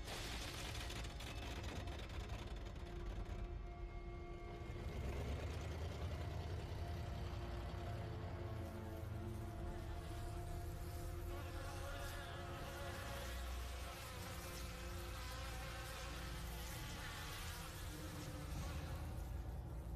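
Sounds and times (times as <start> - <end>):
swarm of flies buzzing: 8.3 - 19.9.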